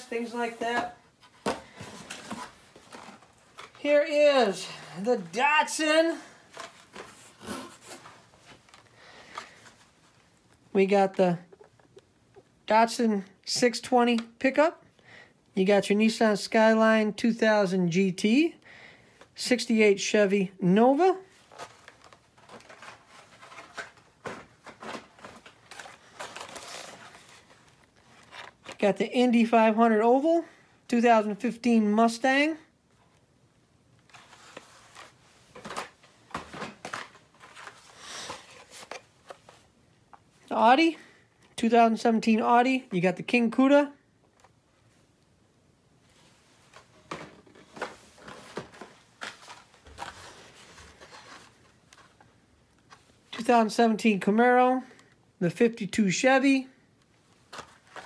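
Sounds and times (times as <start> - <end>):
plastic and card packaging rustling: 0.0 - 10.6, 21.1 - 29.1, 34.0 - 40.4, 46.1 - 53.5, 57.1 - 58.0.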